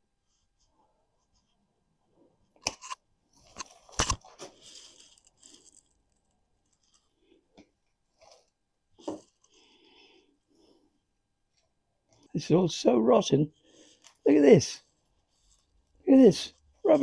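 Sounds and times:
twigs and leaves rustling: 2.8 - 7.0.

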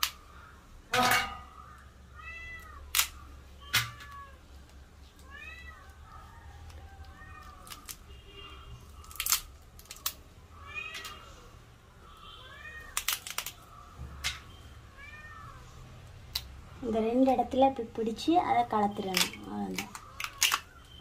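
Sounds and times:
cat meowing: 2.2 - 2.9, 5.2 - 6.4, 10.6 - 11.5, 12.2 - 13.0, 14.9 - 15.8
crab shells cracking: 2.6 - 5.2, 6.6 - 8.1, 8.8 - 10.3, 12.8 - 14.5, 19.1 - 21.0.

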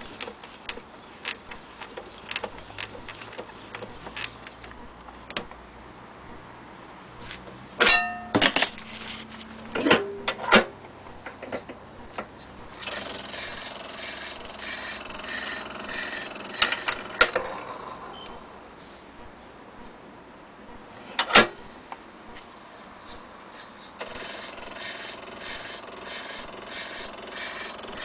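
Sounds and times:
clockwork motor whirring: 12.7 - 18.0, 24.0 - 28.0.

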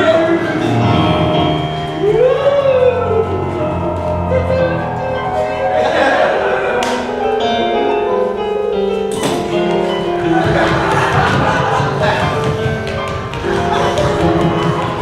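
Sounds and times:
electronic keyboard chords: 0.0 - 15.0.

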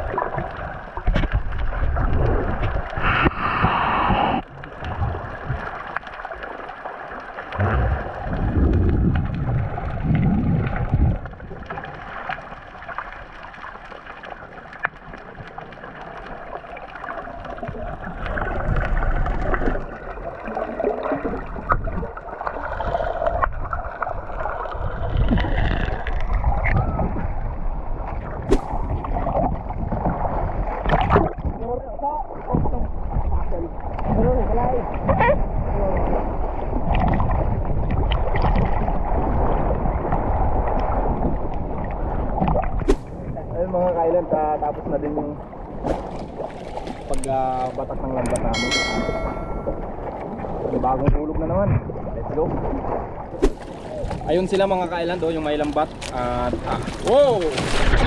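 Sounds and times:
muffled underwater gurgling: 0.0 - 6.0, 7.4 - 12.6, 14.2 - 45.8
water bubbling: 0.0 - 50.8.

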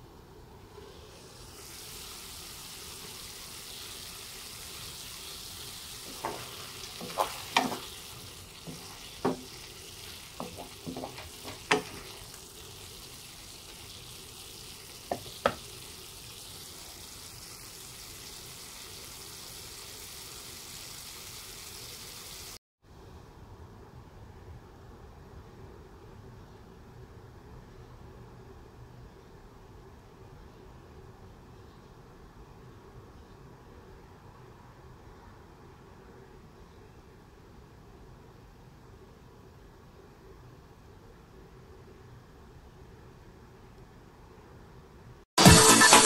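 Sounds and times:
food sizzling in a frying pan: 0.8 - 22.6.

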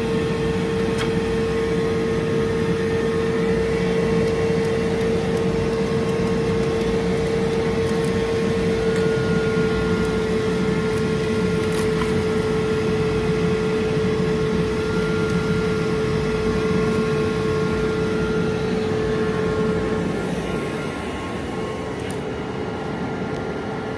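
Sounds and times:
fan hum with whine: 0.0 - 23.9.

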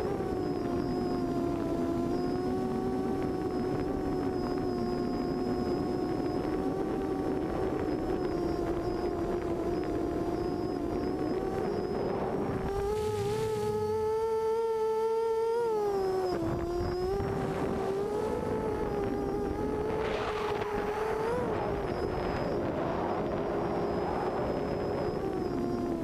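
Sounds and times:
quadcopter motors whining: 0.0 - 26.0.

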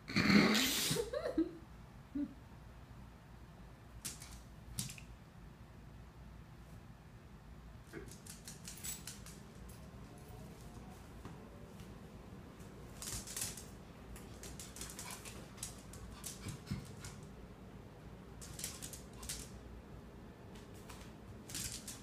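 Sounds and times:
dog claws clicking on hard floor: 4.0 - 5.1, 8.0 - 9.9, 12.9 - 17.3, 18.4 - 19.6, 20.6 - 22.0.

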